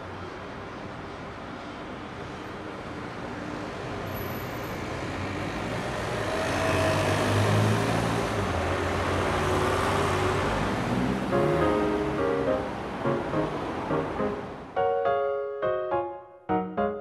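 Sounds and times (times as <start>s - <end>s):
road traffic noise: 0.0s - 16.1s
heavy vehicle engine hum: 9.7s - 14.8s.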